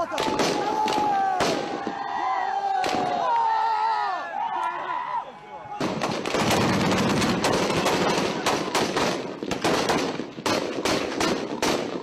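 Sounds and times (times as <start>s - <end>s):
automatic gunfire: 5.8s - 12.0s.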